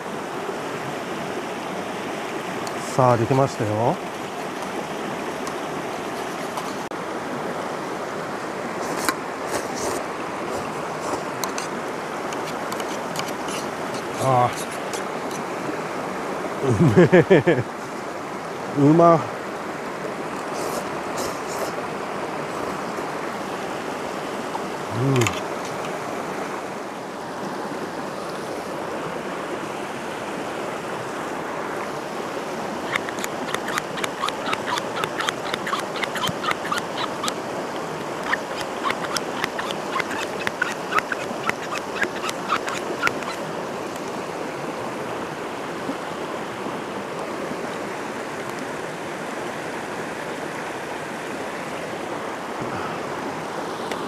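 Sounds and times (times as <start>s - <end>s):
river rushing over rocks: 0.0s - 53.9s
purifier bottle clicks and squeaks: 12.3s - 14.1s, 32.9s - 37.4s, 38.1s - 43.4s
short low vocal sound: 24.9s - 25.4s.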